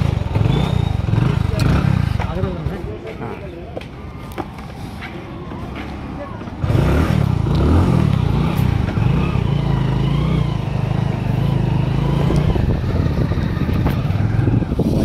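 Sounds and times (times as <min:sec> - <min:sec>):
motor scooter engine running: 0:00.0 - 0:02.6, 0:06.6 - 0:15.0.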